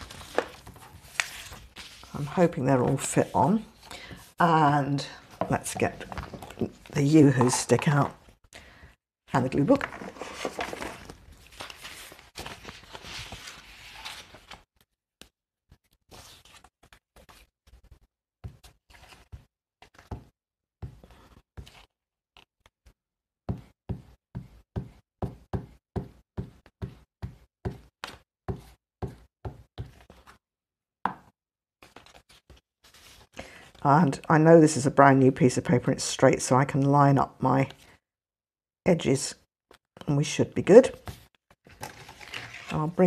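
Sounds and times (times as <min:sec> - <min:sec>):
paper being handled: 0:00.0 - 0:02.3, 0:09.8 - 0:20.1.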